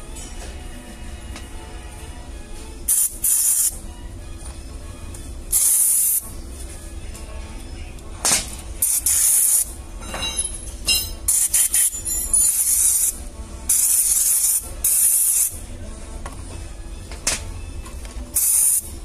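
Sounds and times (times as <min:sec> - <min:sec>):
aerosol spray hissing: 0:02.9 - 0:03.8.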